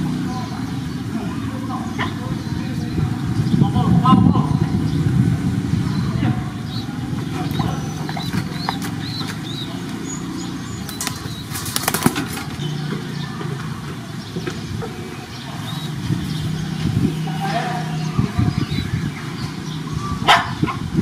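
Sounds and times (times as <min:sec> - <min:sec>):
pigeon wing flaps: 0:10.8 - 0:12.6.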